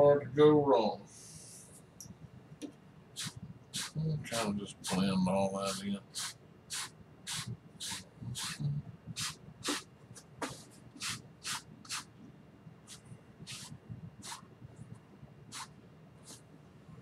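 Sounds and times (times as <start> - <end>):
brush swishing on canvas: 3.2 - 4.5, 5.7 - 12.1, 12.8 - 14.5, 15.5 - 16.5.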